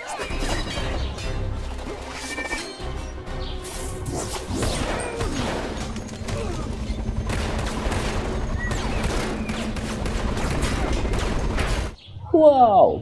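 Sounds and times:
rapid gunfire: 4.5 - 12.0.

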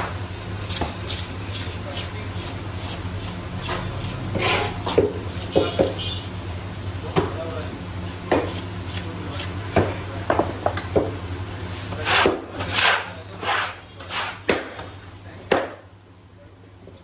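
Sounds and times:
scaler scraping fish scales: 1.0 - 9.6
metal scraper sweeping wooden board: 3.7 - 5.0, 11.8 - 14.6.

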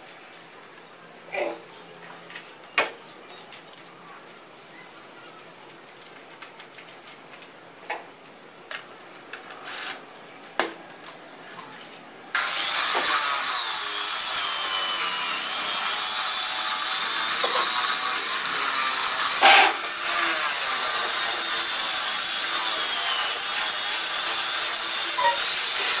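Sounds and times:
power tool running: 12.4 - 26.0.

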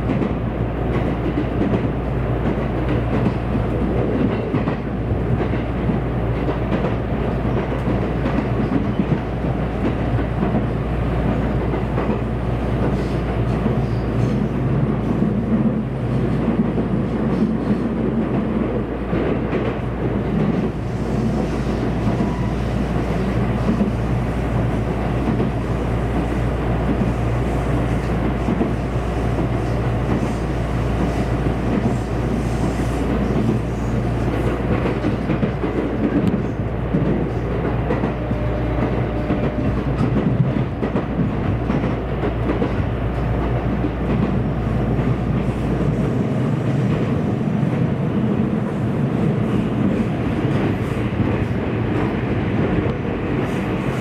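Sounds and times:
train wheels running on rails: 0.0 - 54.0.

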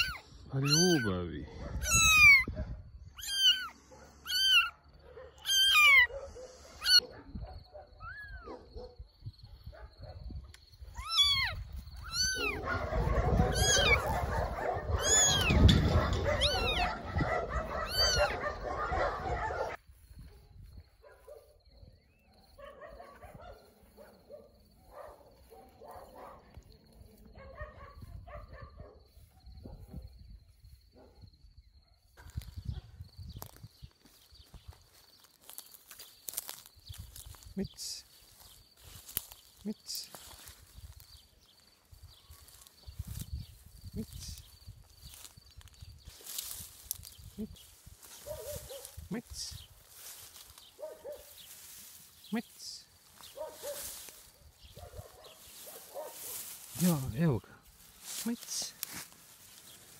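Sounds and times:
kitten meowing: 0.0 - 1.1, 1.8 - 2.5, 3.2 - 4.7, 5.4 - 6.1, 6.8 - 7.0, 10.9 - 12.6, 13.5 - 14.2, 15.0 - 15.8, 16.4 - 16.9, 17.8 - 18.4
footsteps through tall grass: 11.0 - 18.6, 32.2 - 59.9.

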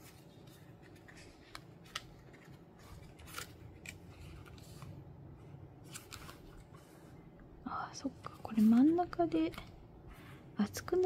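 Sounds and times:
paper pages flipping: 0.0 - 5.0, 5.8 - 7.0.

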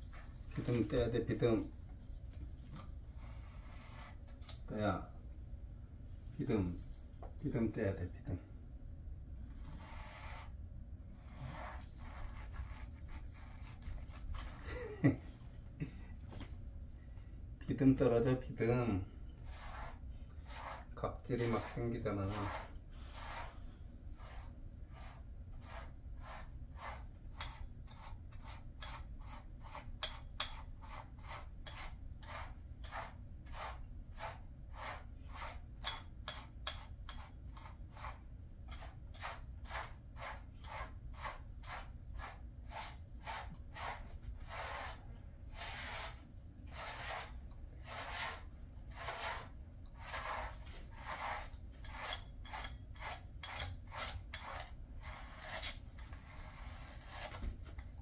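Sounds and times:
brush strokes through dog fur: 9.8 - 10.6, 11.2 - 15.2, 18.0 - 53.3.

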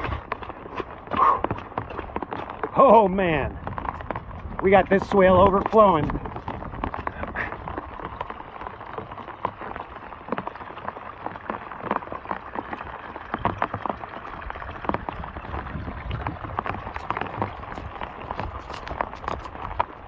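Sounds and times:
sharp rain taps: 0.0 - 11.9
rain patter on wet ground: 0.0 - 20.0.

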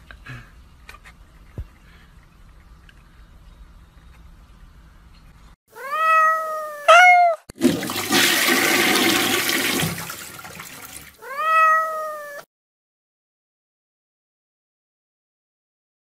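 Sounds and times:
cat meowing: 5.7 - 7.5, 11.2 - 12.5
rushing water: 7.6 - 11.2.

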